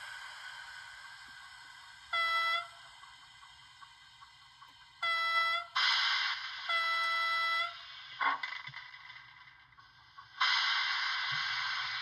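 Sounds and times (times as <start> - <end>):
model locomotive horn: 2.1 - 2.8, 5.0 - 5.8, 6.7 - 7.8
brief hiss: 10.4 - 12.0.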